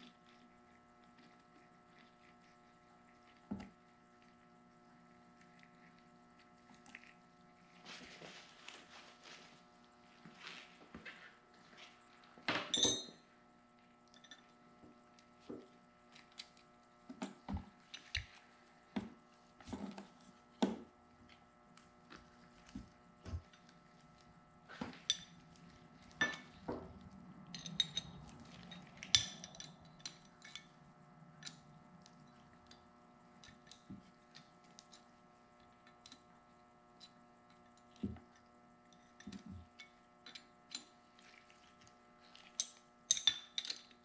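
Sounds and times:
faint steady hum: 0.0s - 44.0s
metal tools clinking: 12.6s - 13.2s, 26.2s - 26.5s.

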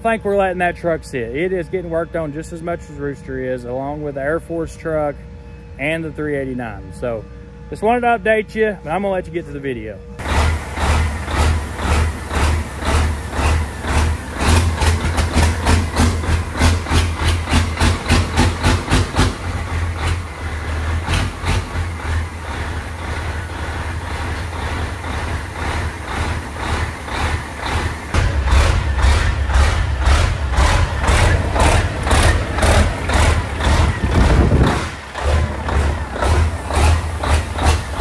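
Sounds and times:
diesel truck engine pulsing: 0.0s - 38.0s.

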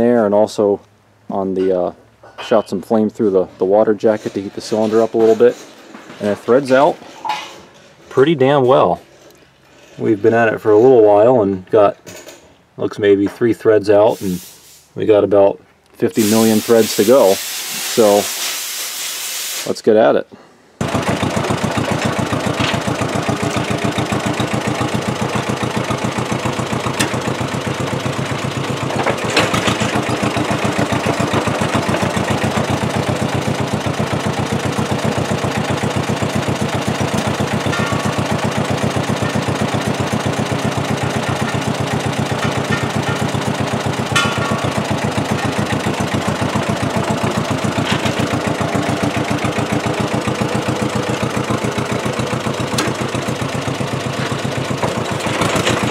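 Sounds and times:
bulldozer engine running: 20.8s - 55.9s
sharp metal clanks: 36.8s - 51.6s.

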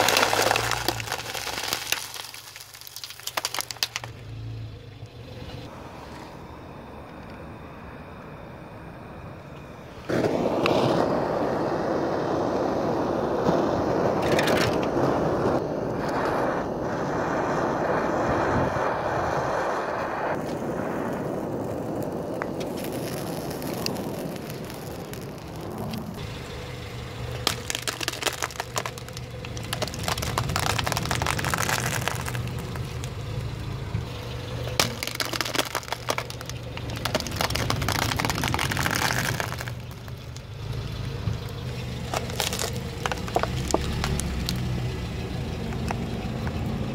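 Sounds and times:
sharp cracks and crackles: 0.0s - 4.3s, 10.1s - 46.7s
blowtorch hissing: 10.3s - 14.2s, 14.8s - 26.2s.

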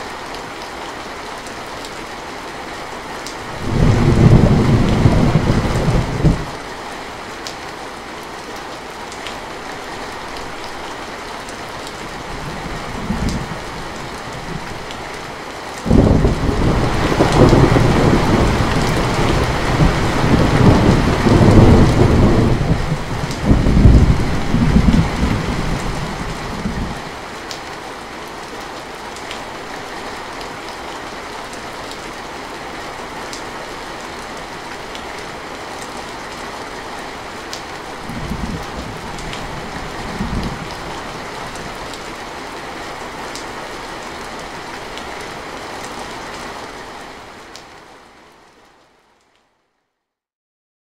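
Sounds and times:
sharp ticks of raindrops: 0.0s - 49.6s
heavy rain on a metal roof: 0.0s - 49.8s
thunder rumbling: 3.5s - 6.5s, 15.9s - 27.1s, 38.0s - 41.8s.

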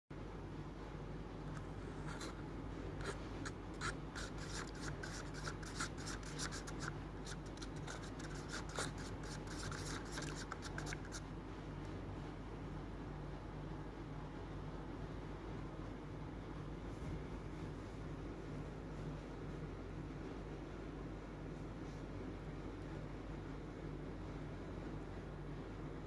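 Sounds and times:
low steady hum: 0.1s - 26.0s
wooden stick stirring liquid in bowl: 3.0s - 11.2s.

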